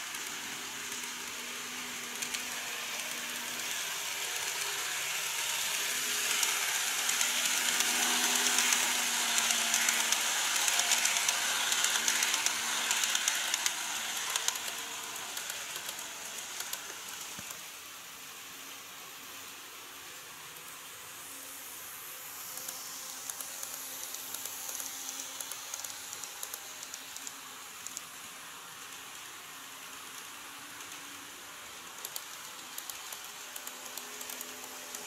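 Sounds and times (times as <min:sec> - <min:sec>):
model train motor whir: 0:00.0 - 0:35.0.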